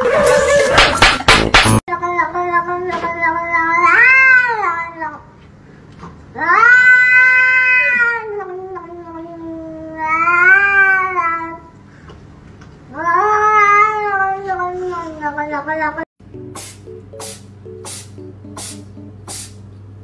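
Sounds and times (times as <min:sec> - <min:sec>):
cat yowling meows: 0:06.4 - 0:08.9.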